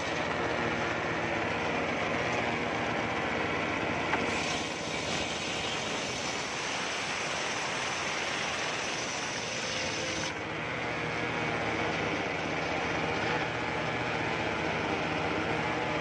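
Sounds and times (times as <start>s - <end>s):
circular saw cutting wood: 4.2s - 10.4s.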